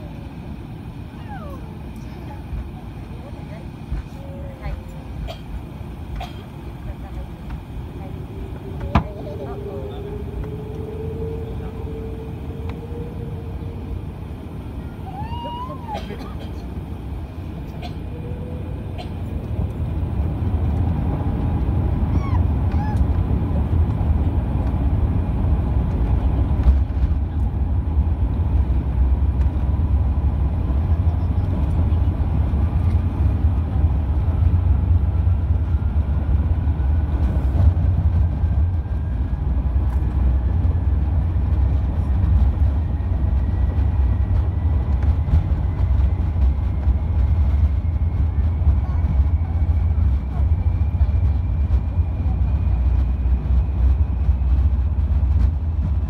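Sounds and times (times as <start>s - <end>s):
jet engines low rumble: 0.0s - 56.0s
faint rising whine: 6.8s - 15.9s.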